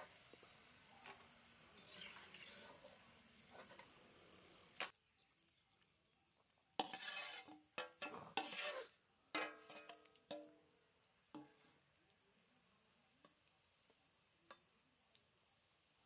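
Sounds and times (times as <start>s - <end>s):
insects chirring: 0.0s - 6.6s, 8.6s - 16.0s
metal spoon clinking and scraping: 6.8s - 10.6s.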